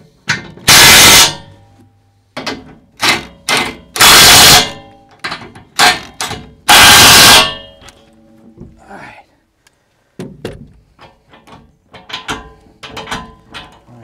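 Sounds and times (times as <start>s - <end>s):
impact wrench hammering: 0.6s - 1.6s, 2.4s - 7.8s.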